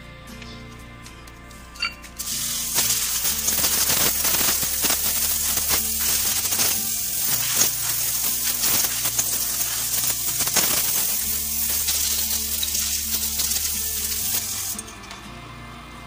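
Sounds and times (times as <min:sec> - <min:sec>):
background music with bass line: 0:00.0 - 0:16.0
crackling hiss with clicks: 0:02.2 - 0:14.8.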